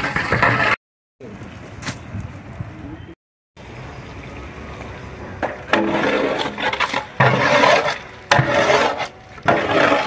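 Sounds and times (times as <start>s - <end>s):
ladle scraping wet food in pot: 5.7s - 10.0s.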